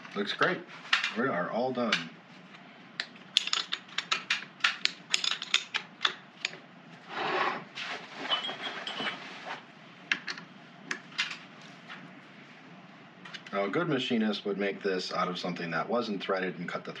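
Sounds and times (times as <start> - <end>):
short scrape: 7.1 - 8.5
metal tools clinking: 8.2 - 9.2.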